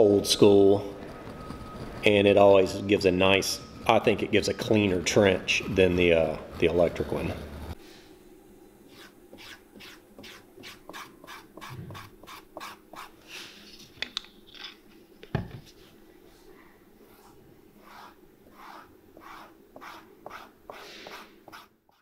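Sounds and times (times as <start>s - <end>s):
dauber stroking leather: 4.9s - 7.8s, 17.1s - 21.7s.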